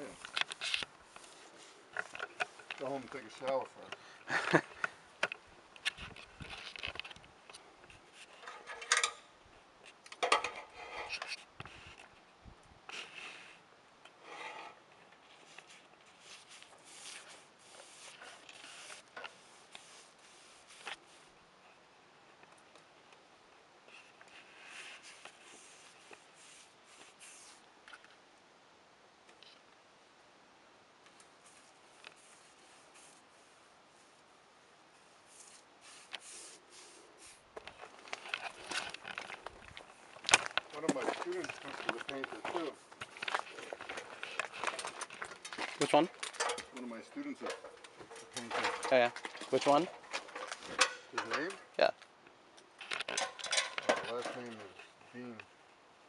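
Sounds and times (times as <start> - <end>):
paintbrush brushing on boards: 15.4 - 21.4, 24.4 - 27.7, 31.4 - 34.2, 35.0 - 37.5.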